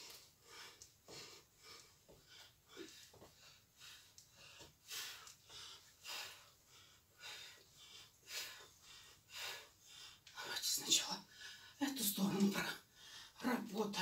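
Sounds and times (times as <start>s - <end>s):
woman breathing heavily: 0.0s - 10.6s, 11.2s - 11.8s, 12.8s - 13.5s.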